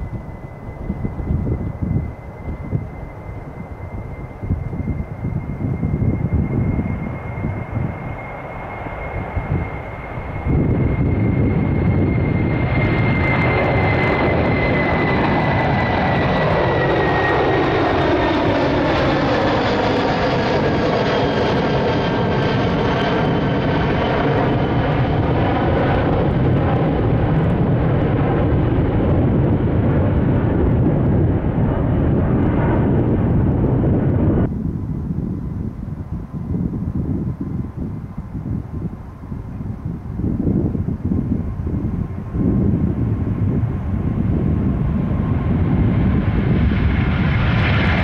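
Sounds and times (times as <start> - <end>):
jet engine high whine: 0.0 - 48.0
jet engine roar: 0.0 - 48.0.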